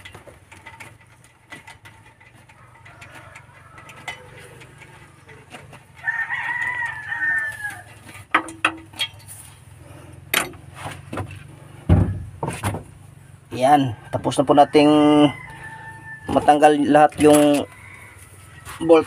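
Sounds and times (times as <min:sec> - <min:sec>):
rooster crowing: 0:02.6 - 0:08.0, 0:13.7 - 0:19.0.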